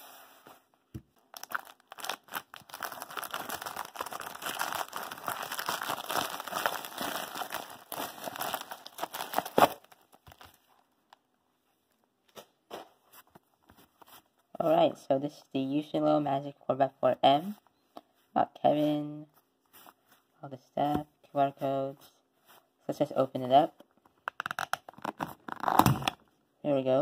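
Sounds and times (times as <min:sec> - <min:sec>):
plastic envelope crinkling and tearing: 0:01.2 - 0:10.9, 0:24.3 - 0:26.2.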